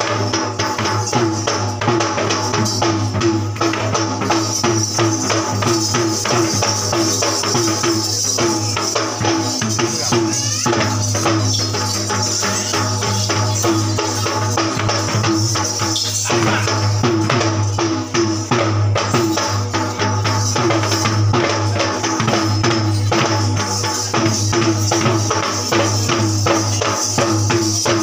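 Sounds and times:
hand drums fast rhythm: 0.0s - 28.0s
metallic jingling: 0.0s - 28.0s.

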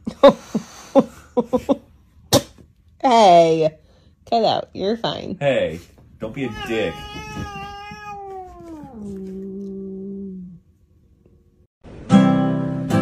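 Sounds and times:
pet howling: 6.4s - 10.6s
acoustic guitar strumming: 11.9s - 13.0s.

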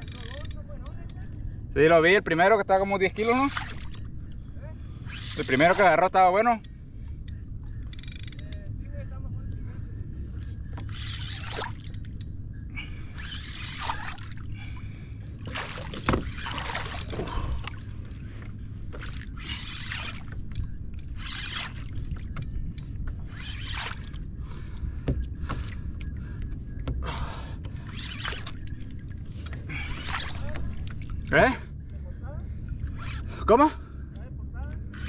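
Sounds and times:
low steady rumble: 0.0s - 35.0s
water splashing against kayak hull: 13.0s - 20.5s, 26.8s - 31.3s.

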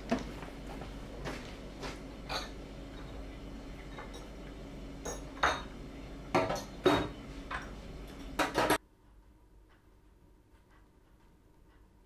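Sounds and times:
dishes and cutlery clattering: 2.3s - 3.2s, 3.9s - 4.4s, 5.1s - 5.7s, 6.3s - 8.8s.

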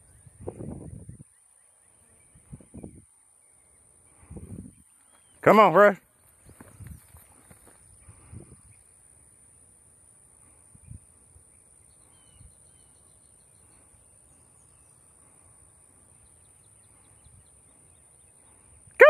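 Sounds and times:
faint bird chirps: 0.0s - 5.5s, 10.7s - 18.9s.

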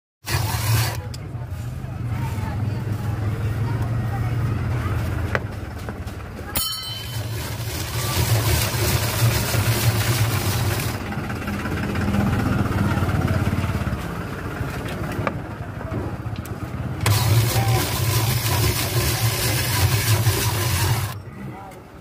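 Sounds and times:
ice shaving machine hum: 0.2s - 1.1s, 6.6s - 13.8s, 17.0s - 21.2s
ice scraping on blade: 0.2s - 1.2s, 7.1s - 11.0s, 17.0s - 21.2s.

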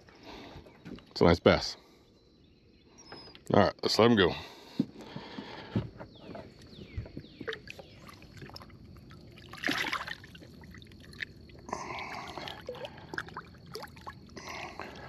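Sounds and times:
water splashing and trickling: 7.3s - 15.0s.

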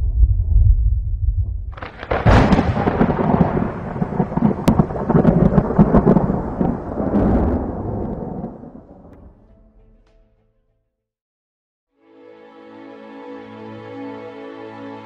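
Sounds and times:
thunder crack and rumble: 0.0s - 9.5s.

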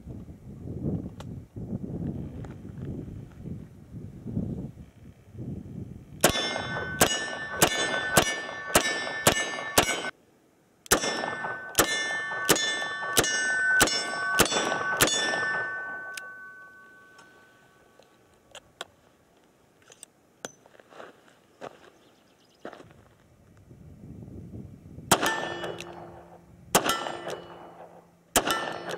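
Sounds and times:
steel targets ringing: 6.2s - 10.1s, 10.9s - 18.0s, 25.1s - 28.9s.

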